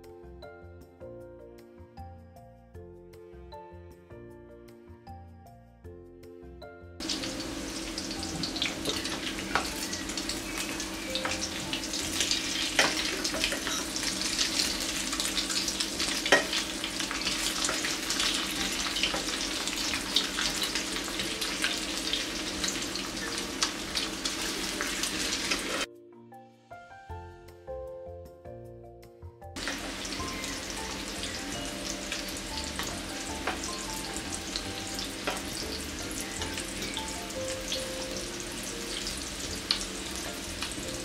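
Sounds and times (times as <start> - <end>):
soft music: 0.0 - 41.0
cauliflower sizzling in hot oil: 7.0 - 25.9, 29.6 - 41.0.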